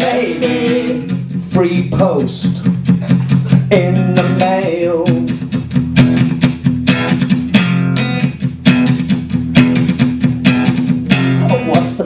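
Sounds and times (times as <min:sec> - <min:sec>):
bass line: 0:00.0 - 0:12.0
electric guitar playing: 0:00.0 - 0:12.0
steady beat: 0:00.0 - 0:12.0.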